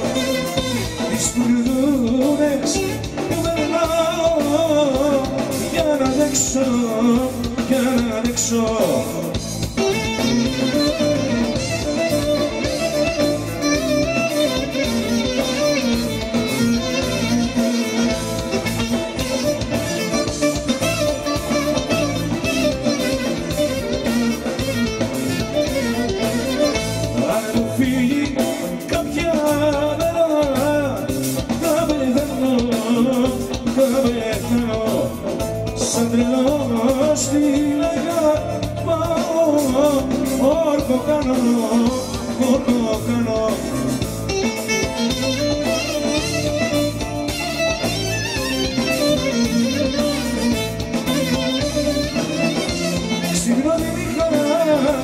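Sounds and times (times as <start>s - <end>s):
clarinet melody: 0.0s - 4.4s, 9.6s - 27.6s, 43.9s - 55.0s
drums: 0.0s - 55.0s
electric bass: 0.0s - 55.0s
keyboard: 0.0s - 55.0s.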